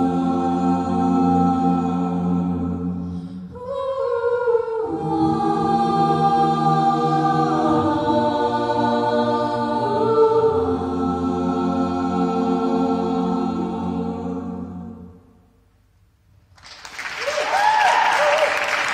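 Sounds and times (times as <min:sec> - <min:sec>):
a cappella group singing chords: 0:00.0 - 0:15.5.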